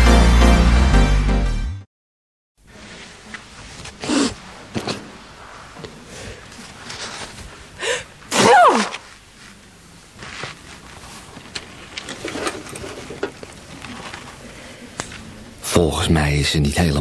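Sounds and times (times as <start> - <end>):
woman sneezing: 8.3 - 9.0
small clicks and rustles: 10.2 - 15.3.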